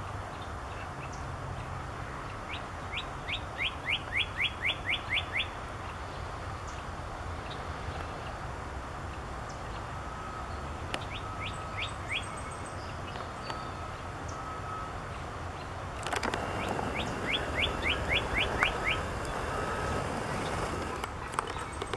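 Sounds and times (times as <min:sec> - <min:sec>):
bird singing whistles: 0:02.9 - 0:05.6, 0:10.2 - 0:14.9, 0:16.4 - 0:20.9.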